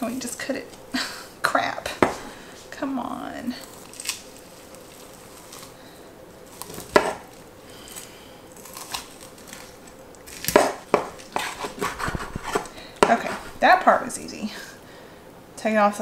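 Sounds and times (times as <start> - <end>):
knife chopping through bones: 6.7 - 7.3, 10.3 - 13.5.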